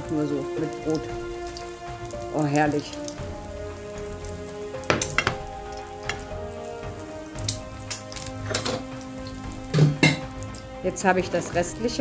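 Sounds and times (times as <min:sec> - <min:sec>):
egg sizzling in a pan: 0:00.0 - 0:12.0
dishes knocking and clinking: 0:04.9 - 0:05.5, 0:09.7 - 0:10.4.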